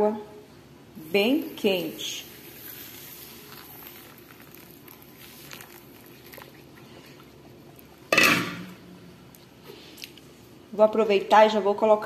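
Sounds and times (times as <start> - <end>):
hot water splashing and trickling: 2.0 - 8.1.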